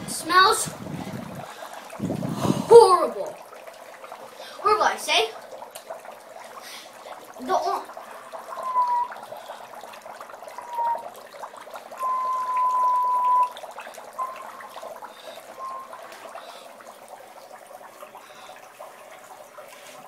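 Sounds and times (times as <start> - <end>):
dry ice bubbling in water: 0.0 - 20.0
whistle-like tones: 8.6 - 9.2, 10.5 - 11.1, 12.0 - 13.6, 14.2 - 14.7, 15.5 - 16.1.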